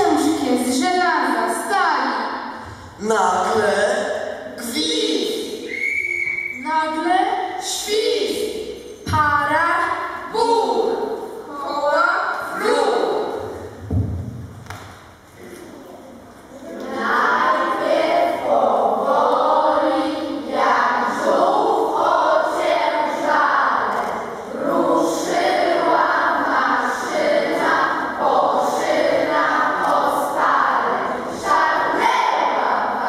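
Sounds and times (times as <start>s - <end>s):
children singing: 16.6s - 33.0s.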